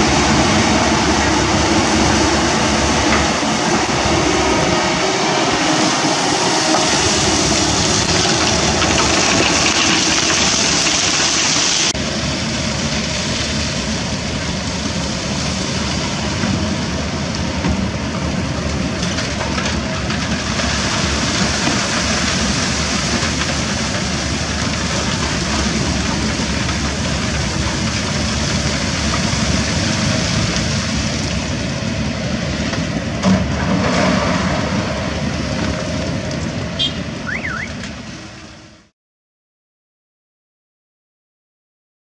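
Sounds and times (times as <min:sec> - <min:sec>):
excavator diesel engine running: 0:00.0 - 0:38.8
rock dumping into truck: 0:07.4 - 0:11.9
sharp clatter: 0:07.8 - 0:12.0.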